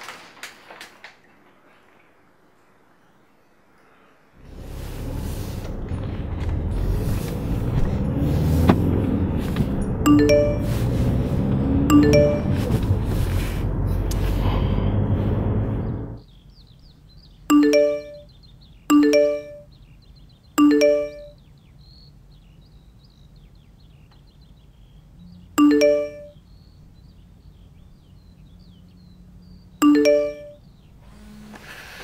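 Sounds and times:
phone notification chime: 0:10.1 - 0:10.8, 0:11.9 - 0:12.7, 0:17.5 - 0:18.3, 0:18.9 - 0:19.7, 0:20.6 - 0:21.4, 0:25.6 - 0:26.4, 0:29.8 - 0:30.6.

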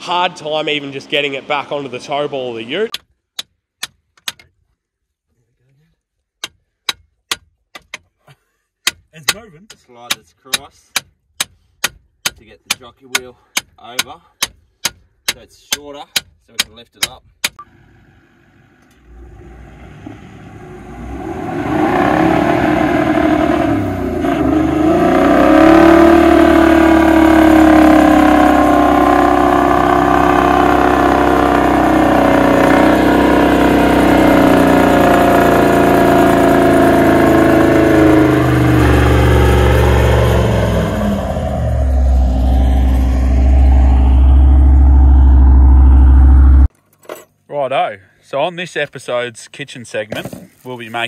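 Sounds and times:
engine revving hard: 0:19.1 - 0:46.7.

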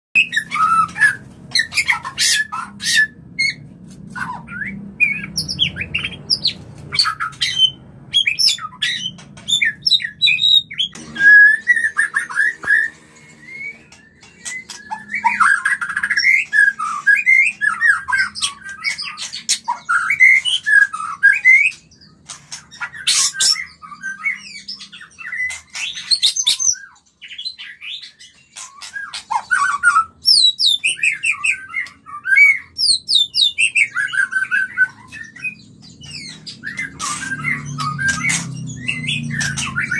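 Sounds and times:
birds whistling and chattering: 0:00.2 - 0:39.9.

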